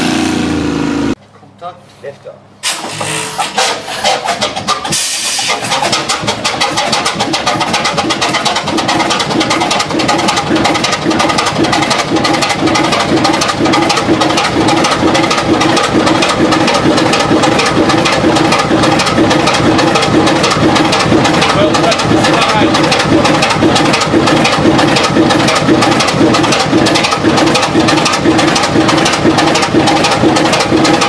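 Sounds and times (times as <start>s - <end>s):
stationary diesel engine running: 0.0s - 1.2s, 2.6s - 31.0s.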